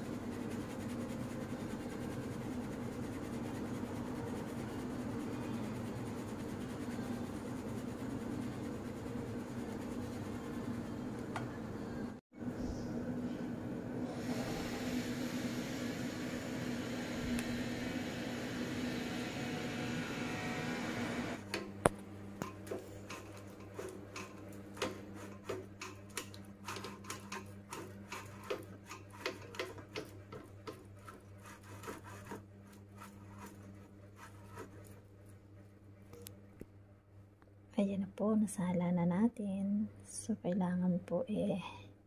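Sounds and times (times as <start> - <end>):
spatula scraping in a bowl: 22.4 - 35.0
spatula scraping through a sieve: 22.7 - 35.1.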